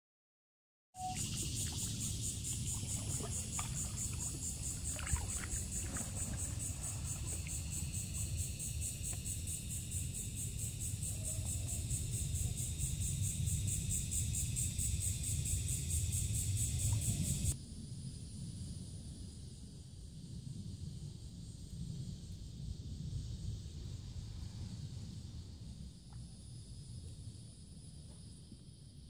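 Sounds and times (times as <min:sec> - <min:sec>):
pulsing insect chorus: 0:01.0 - 0:29.0
paddle drips: 0:01.1 - 0:09.3
wind rumble on microphone: 0:01.2 - 0:29.0.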